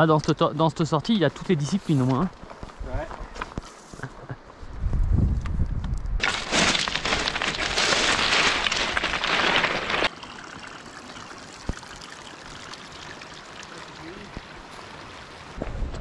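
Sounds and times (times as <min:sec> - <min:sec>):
footsteps on loose rock: 0:06.2 - 0:10.1
stream water flowing: 0:09.2 - 0:15.6.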